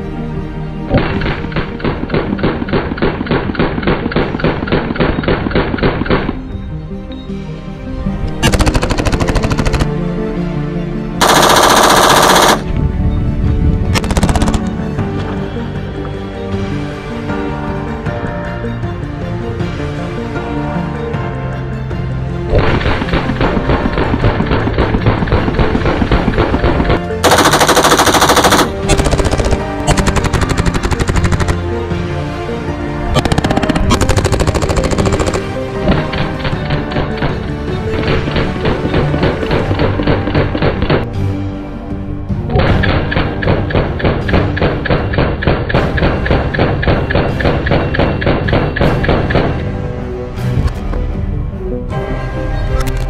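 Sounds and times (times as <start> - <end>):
background music: 0.0 - 53.0
rifle firing full auto bursts: 8.4 - 9.9, 11.2 - 12.6, 27.2 - 31.6.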